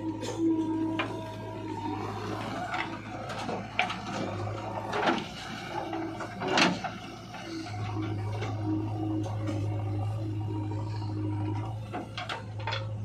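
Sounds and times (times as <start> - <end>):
diesel engines humming: 0.0 - 13.0.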